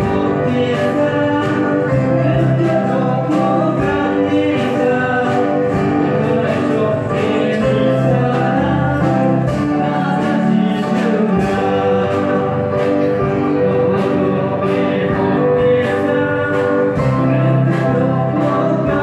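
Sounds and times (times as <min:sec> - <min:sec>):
acoustic guitar: 0:00.0 - 0:19.0
keyboard: 0:00.0 - 0:19.0
people singing: 0:00.0 - 0:19.0
steady beat: 0:00.0 - 0:19.0.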